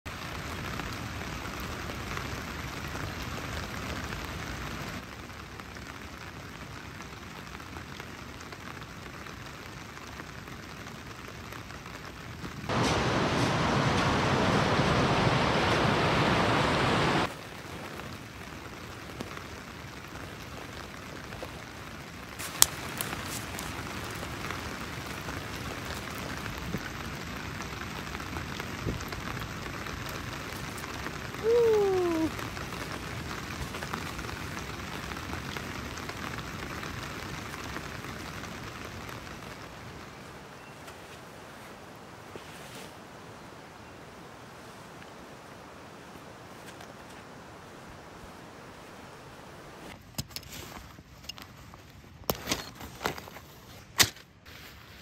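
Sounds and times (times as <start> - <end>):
rain falling: 0.0 - 53.2
rushing river water: 12.7 - 50.0.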